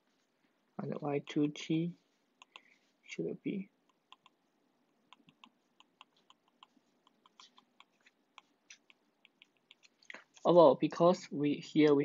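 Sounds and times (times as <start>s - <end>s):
stylus tapping on glass screen: 5.1s - 9.8s.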